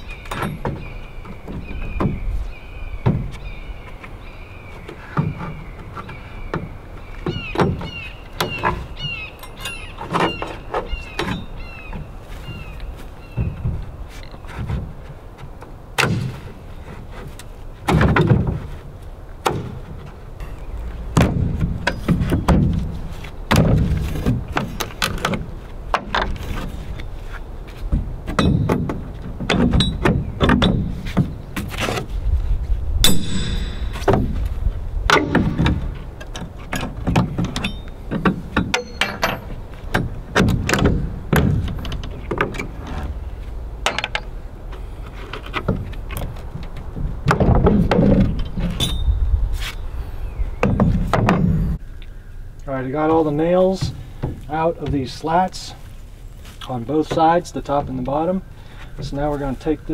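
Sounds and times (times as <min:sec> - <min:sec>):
nails levered from wooden slats: 0:00.2 - 0:02.2, 0:13.3 - 0:20.2, 0:21.1 - 0:26.8, 0:27.9 - 0:32.1, 0:33.1 - 0:43.2, 0:43.8 - 0:49.1, 0:50.6 - 0:51.8
short metallic ring: 0:33.0 - 0:34.0, 0:48.8 - 0:49.2
hammer striking metal pry bar: 0:33.0 - 0:34.4.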